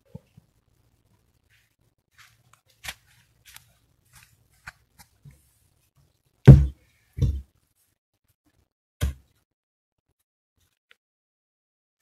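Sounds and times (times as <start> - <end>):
heavy wooden thuds of logs: 6.5 - 7.4.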